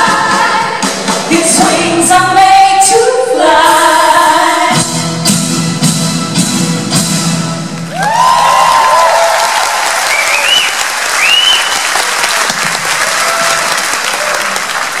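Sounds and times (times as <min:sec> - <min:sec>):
audience applauding and cheering: 0:07.8 - 0:15.0.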